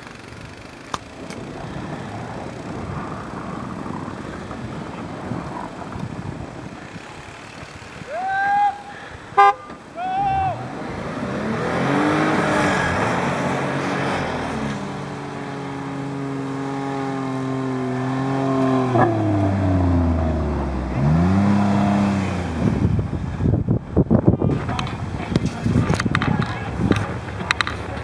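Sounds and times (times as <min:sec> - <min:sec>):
engine revving hard: 0:10.6 - 0:15.1, 0:16.2 - 0:23.0.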